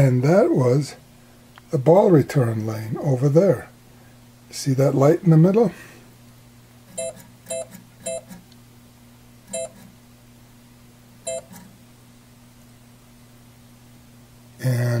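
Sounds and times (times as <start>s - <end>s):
short electronic beeps: 7.0s - 8.3s, 9.5s - 9.9s, 11.3s - 11.6s.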